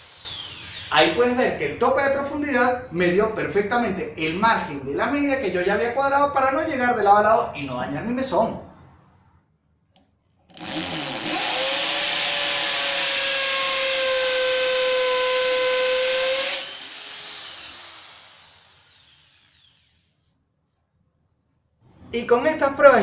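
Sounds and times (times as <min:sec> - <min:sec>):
hammer drill boring into brick: 0:00.0 - 0:01.0, 0:10.5 - 0:20.1
drill motor winding down: 0:00.0 - 0:01.3, 0:10.5 - 0:20.2.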